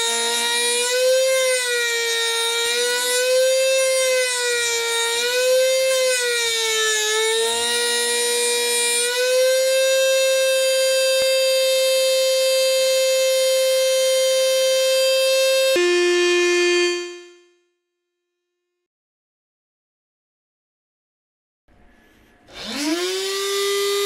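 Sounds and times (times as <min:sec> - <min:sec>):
sustained pitch-bending tone: 0:15.6 - 0:17.6.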